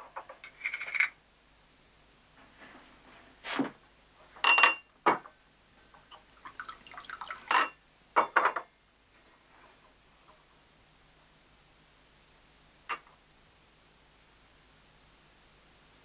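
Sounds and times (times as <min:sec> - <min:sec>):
glassware clinking: 0:04.4 - 0:05.4, 0:07.3 - 0:08.7
water pouring into glass: 0:06.4 - 0:07.8.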